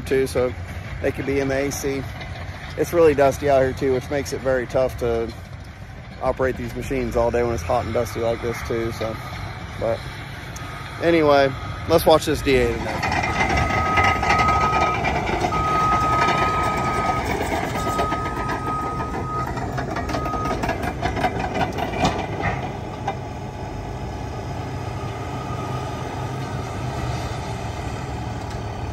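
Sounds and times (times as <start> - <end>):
diesel engine running: 0.0 - 28.9
backup alarm beeps: 13.6 - 21.2.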